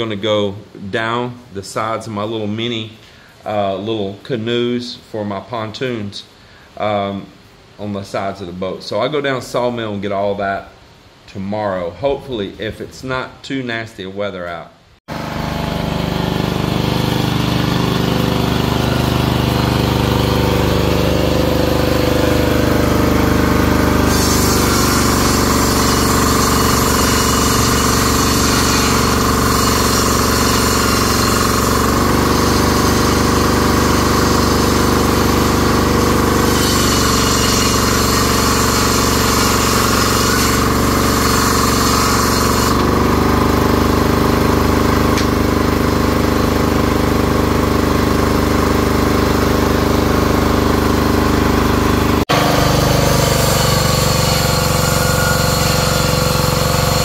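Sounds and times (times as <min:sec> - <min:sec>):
engine running steadily: 0:15.1 - 0:38.6, 0:42.4 - 0:57.0.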